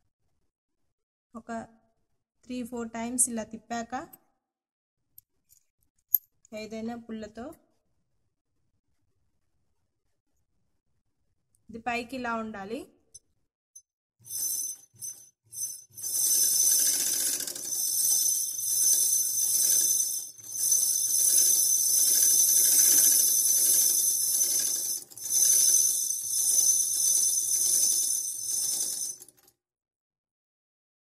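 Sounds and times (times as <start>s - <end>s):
bobbin winder whirring: 14.3s - 29.4s.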